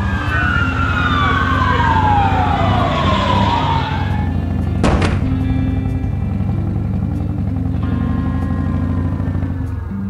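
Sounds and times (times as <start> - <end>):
siren wailing: 0.0 - 4.8
engine rumble: 0.0 - 10.0.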